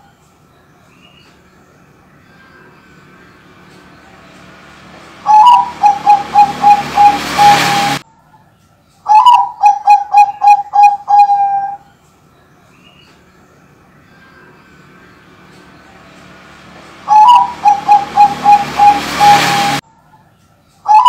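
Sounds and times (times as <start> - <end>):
dove cooing: 5.2 - 8.0, 9.1 - 11.8, 17.0 - 19.8.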